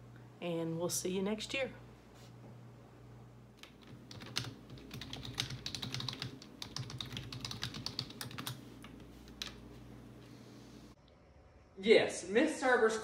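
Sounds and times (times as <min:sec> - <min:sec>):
low steady hum: 0:00.0 - 0:13.0
typing on a keyboard: 0:03.6 - 0:09.6.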